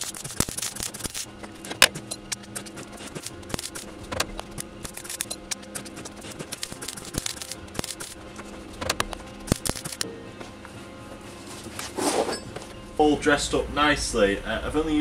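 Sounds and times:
welder crackling and popping: 0:00.0 - 0:01.9.

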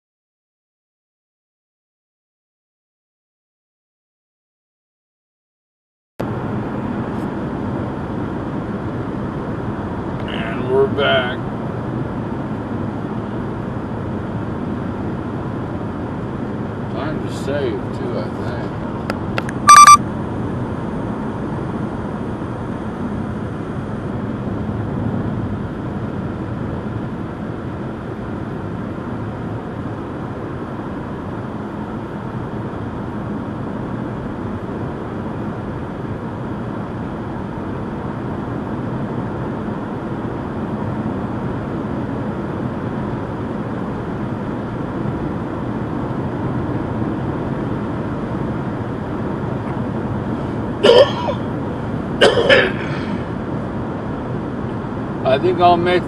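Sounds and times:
car road noise from inside: 0:06.2 - 0:56.0.

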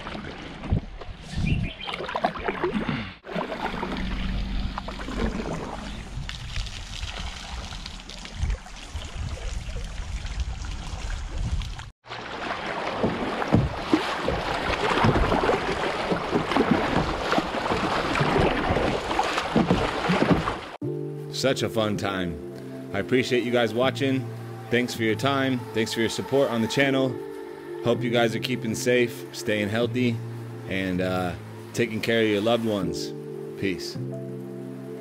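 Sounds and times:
water rushing and splashing: 0:00.0 - 0:01.2, 0:01.8 - 0:20.8, 0:23.4 - 0:35.0
quiet water sounds: 0:00.0 - 0:20.9, 0:21.7 - 0:35.0
low wind rumble: 0:03.7 - 0:11.9.

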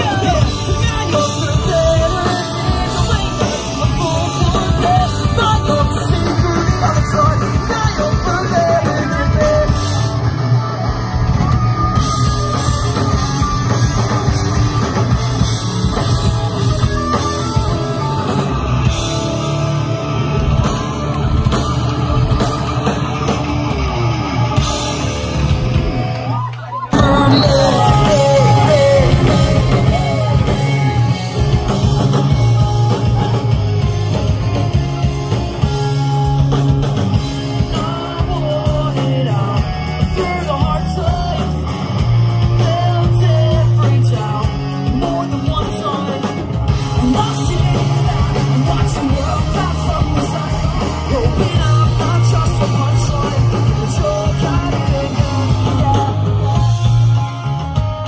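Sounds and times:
person singing: 0:00.0 - 0:10.3, 0:26.8 - 0:34.3, 0:37.4 - 0:57.0
pop-punk band playing live: 0:00.0 - 0:58.0.

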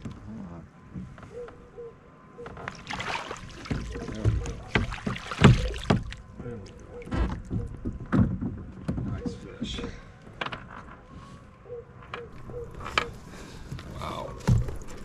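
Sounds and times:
gear bumping kayak hull: 0:03.6 - 0:06.3.

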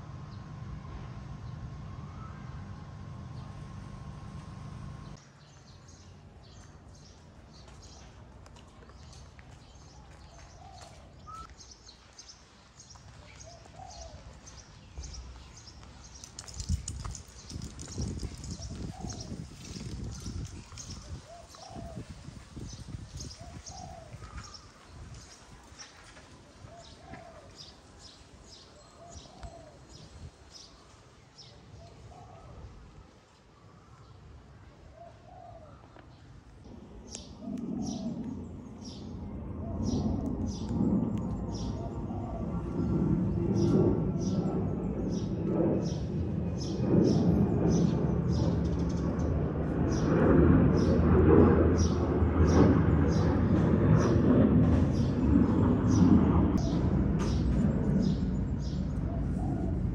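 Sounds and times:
birds chirping: 0:05.0 - 0:32.7, 0:35.0 - 0:50.1, 0:51.8 - 0:59.9
soft low bird calls: 0:09.8 - 0:11.8, 0:33.5 - 0:46.1, 0:54.9 - 0:59.9
dove cooing: 0:13.4 - 0:14.3, 0:20.9 - 0:22.1, 0:36.8 - 0:38.3, 0:41.6 - 0:43.0, 0:58.9 - 0:59.9.

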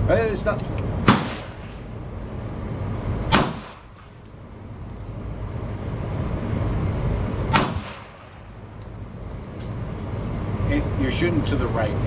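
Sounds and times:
steady low rumble: 0:00.0 - 0:12.0
pistol shots with echo: 0:01.1 - 0:01.7, 0:03.3 - 0:04.1, 0:07.5 - 0:08.4.

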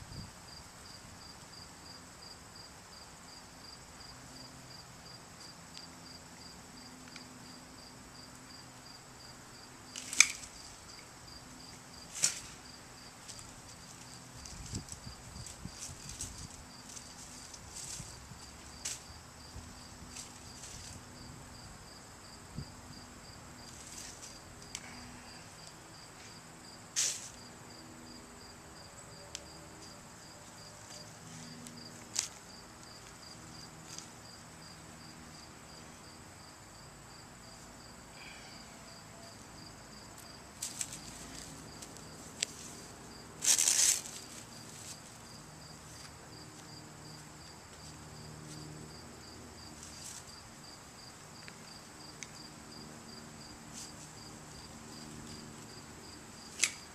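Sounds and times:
insects chirping: 0:00.1 - 0:56.9
dry vines rustling and snapping: 0:09.9 - 0:11.1, 0:12.1 - 0:12.6, 0:13.3 - 0:19.1, 0:40.6 - 0:42.7, 0:43.4 - 0:44.4, 0:56.5 - 0:56.9.

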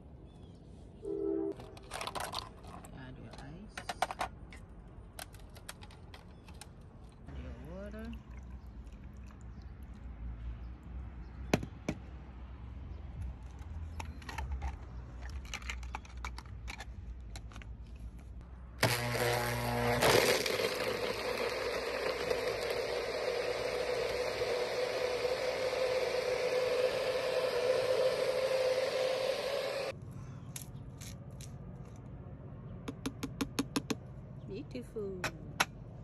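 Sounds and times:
handling clicks and knocks: 0:01.6 - 0:07.2, 0:13.2 - 0:18.3
blender blending ice: 0:18.8 - 0:29.9.

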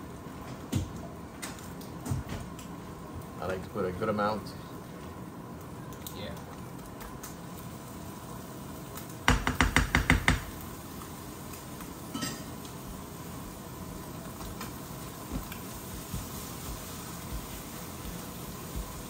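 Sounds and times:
spoon rapping a frying pan: 0:09.3 - 0:10.6
faint clink: 0:12.1 - 0:12.5.

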